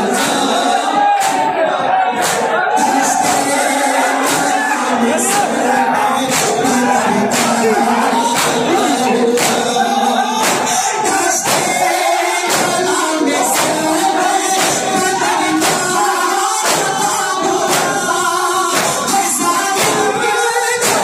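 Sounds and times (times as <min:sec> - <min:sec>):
men chanting a lament: 0:00.0 - 0:21.0
hands slapping chests: 0:01.2 - 0:01.6, 0:02.2 - 0:02.5, 0:04.2 - 0:04.6, 0:06.3 - 0:07.7, 0:08.3 - 0:09.8, 0:10.4 - 0:10.8, 0:11.4 - 0:11.7, 0:12.5 - 0:12.9, 0:13.5 - 0:13.8, 0:14.6 - 0:15.9, 0:16.6 - 0:18.0, 0:18.7 - 0:19.1, 0:19.8 - 0:20.1, 0:20.8 - 0:21.0.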